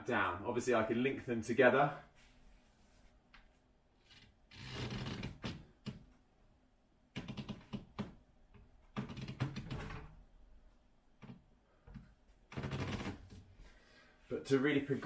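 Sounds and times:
pull-up bar creaking and knocking: 0:04.0 - 0:06.2, 0:07.1 - 0:10.2, 0:11.2 - 0:13.5.

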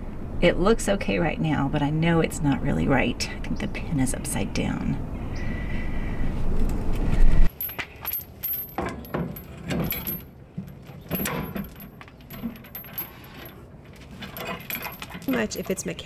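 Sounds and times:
small metal parts clinking: 0:07.5 - 0:16.0.

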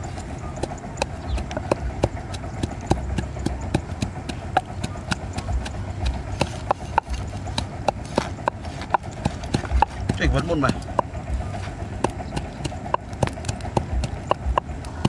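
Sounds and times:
cleaver chopping on wooden board: 0:06.4 - 0:10.2.

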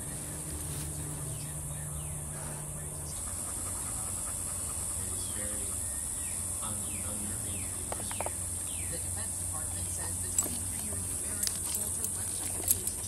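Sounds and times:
birds chirping falling calls: 0:00.0 - 0:09.2.

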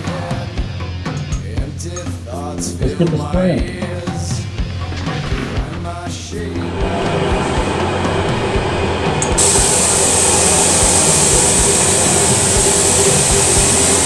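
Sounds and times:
steady mechanical hum: 0:06.4 - 0:14.0
spray gun air hiss: 0:06.7 - 0:14.0.

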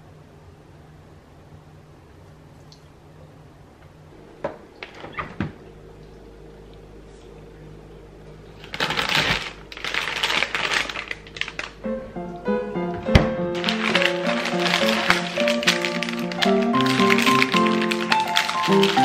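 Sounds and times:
faint steady hum: 0:00.0 - 0:19.0
plastic packaging crinkling: 0:08.6 - 0:11.8, 0:13.5 - 0:19.0.

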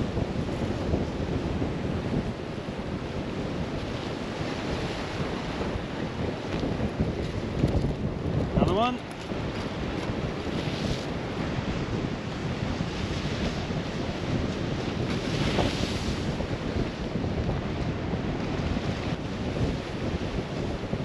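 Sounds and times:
surf washing against rocks: 0:00.0 - 0:21.0
wind buffeting microphone: 0:00.0 - 0:21.0.

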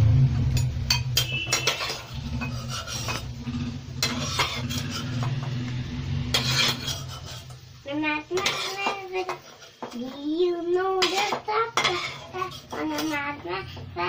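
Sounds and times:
spoon clinking glass bowl: 0:00.6 - 0:03.2
spoon scraping frying pan: 0:00.6 - 0:13.9.

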